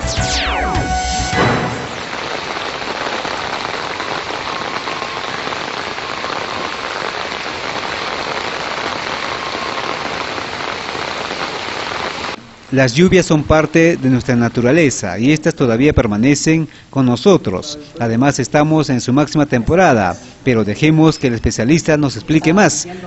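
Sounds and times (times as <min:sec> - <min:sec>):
news jingle: 0:00.0 - 0:02.3
heavy rain and running water: 0:01.2 - 0:16.1.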